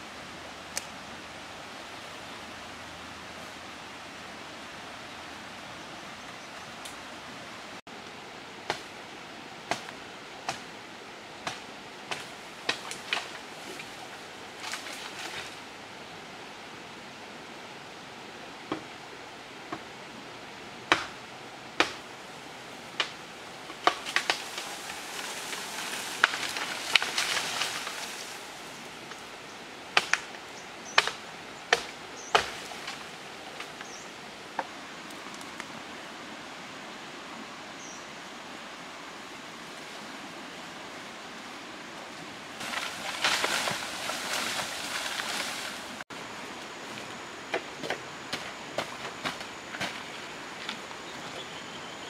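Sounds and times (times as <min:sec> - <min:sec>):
bamboo leaves rustling: 0:00.0 - 0:15.9, 0:20.8 - 0:36.7, 0:39.2 - 0:52.0
blade chopping bamboo: 0:20.9 - 0:21.2, 0:21.8 - 0:22.0, 0:30.0 - 0:30.3, 0:31.0 - 0:33.0
bamboo pole dragged through leaves: 0:24.0 - 0:28.8, 0:42.6 - 0:46.0.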